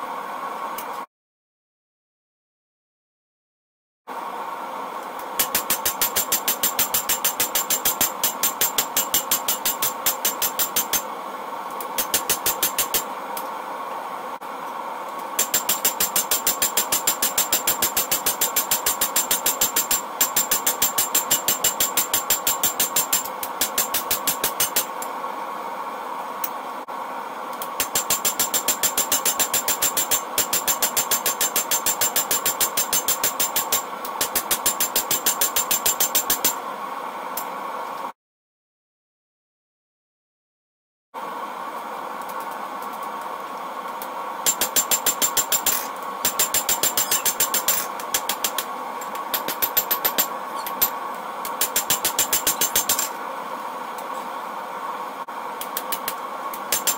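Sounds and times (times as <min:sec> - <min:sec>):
hammer striking steel on anvil: 0:05.4 - 0:11.1, 0:12.0 - 0:13.1, 0:15.4 - 0:25.0, 0:27.7 - 0:36.6, 0:44.4 - 0:48.7, 0:49.3 - 0:50.9, 0:51.5 - 0:53.1.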